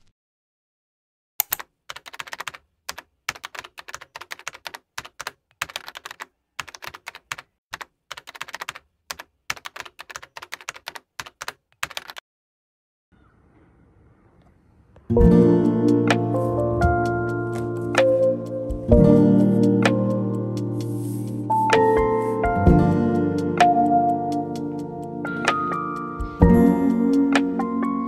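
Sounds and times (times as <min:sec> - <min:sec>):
keyboard typing: 0:01.4 - 0:12.2.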